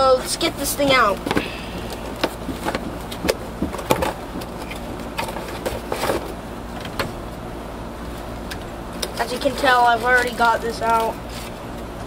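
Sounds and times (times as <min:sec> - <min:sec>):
packaging scraping and rustling: 0:01.0 - 0:06.4, 0:09.2 - 0:11.8.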